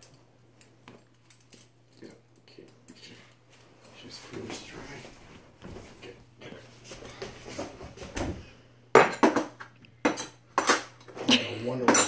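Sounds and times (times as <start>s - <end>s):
dishes clattering: 8.0s - 12.0s.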